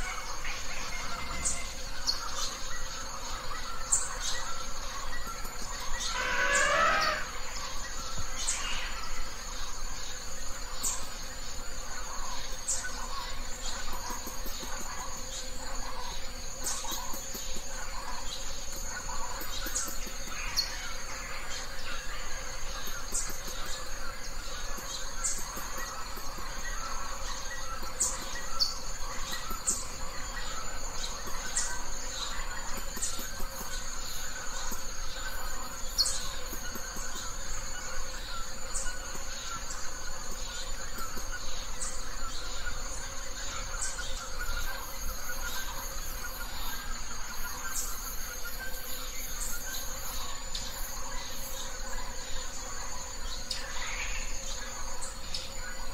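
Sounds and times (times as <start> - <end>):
high insect drone: 0.0 - 55.9
loud sweeping bird call: 6.0 - 7.5.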